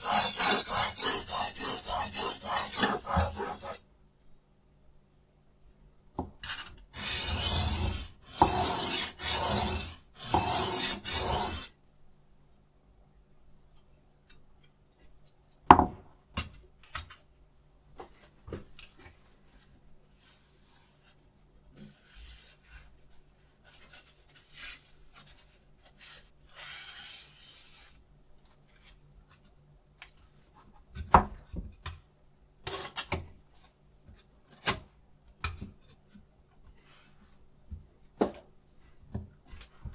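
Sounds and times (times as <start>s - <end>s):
knife rasping on sharpening plate: 0.0s - 3.8s, 7.0s - 11.7s.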